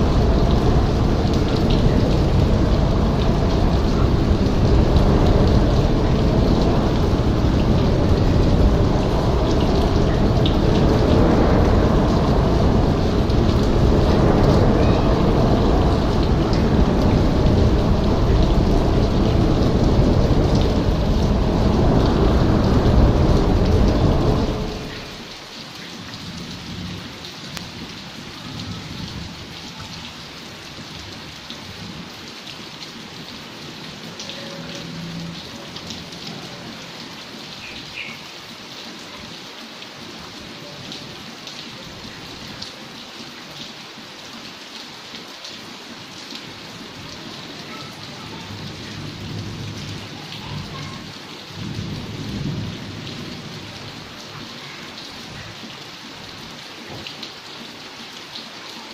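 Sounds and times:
low rumble: 0:00.0 - 0:25.2
heavy rain on windows: 0:00.0 - 0:58.9.

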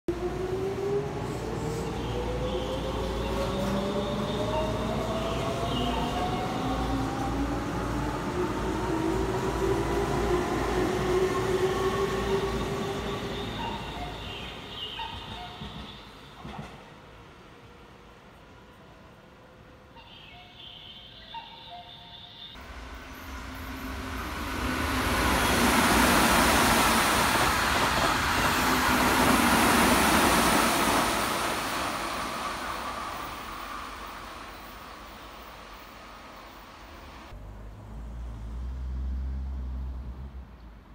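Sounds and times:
train passing at speed: 0:00.1 - 0:20.4, 0:21.2 - 0:37.4
train low rumble: 0:22.6 - 0:37.4.

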